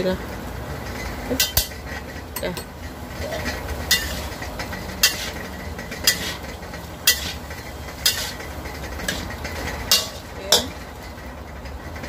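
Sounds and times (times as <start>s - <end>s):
utensil clinking against pot: 1.4s - 10.9s.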